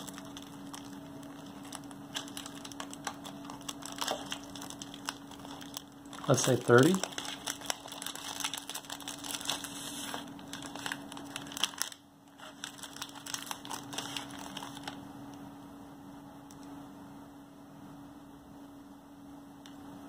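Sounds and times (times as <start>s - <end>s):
foil bag crinkling: 0.0s - 15.0s.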